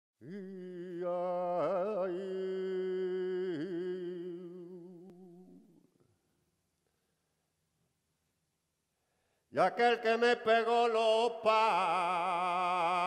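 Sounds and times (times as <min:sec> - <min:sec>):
person singing long notes: 0:00.2 - 0:05.8.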